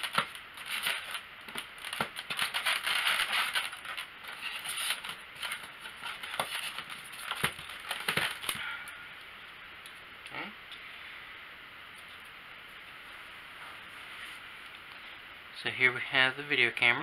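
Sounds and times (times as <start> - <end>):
styrofoam squeaking and crackling: 0.0 - 8.6.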